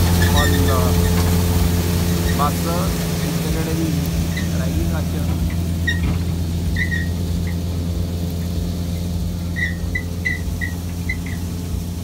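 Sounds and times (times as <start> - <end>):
tractor engine running under load: 0.0 - 12.0
short high squeaks: 0.1 - 1.3, 5.8 - 7.7, 9.0 - 11.6.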